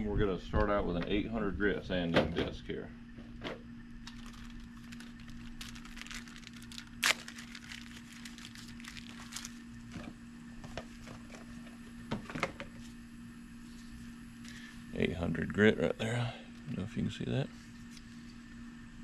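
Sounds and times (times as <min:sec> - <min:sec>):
sanding disc crinkling: 0:04.0 - 0:10.1.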